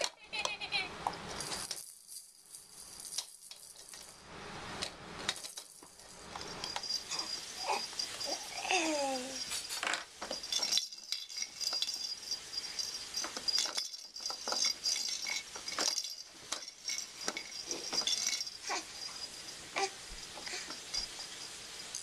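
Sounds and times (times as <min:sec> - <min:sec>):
plastic toys clicking and rattling: 0:00.0 - 0:04.1, 0:04.8 - 0:22.0
bead-filled rattle ball: 0:01.1 - 0:04.3, 0:05.3 - 0:22.0
baby vocalization: 0:07.1 - 0:09.5.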